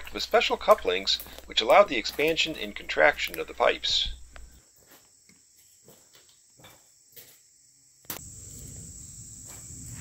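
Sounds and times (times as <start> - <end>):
high-pitched insect chorus: 0.0 - 10.0.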